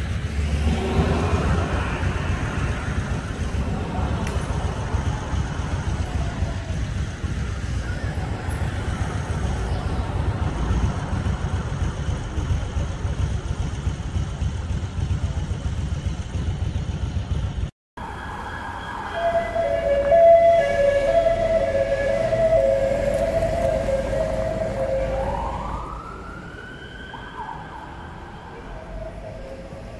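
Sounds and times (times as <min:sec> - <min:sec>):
cars driving past: 0:00.0 - 0:13.9, 0:18.0 - 0:29.9
siren: 0:00.6 - 0:10.0, 0:18.0 - 0:29.9.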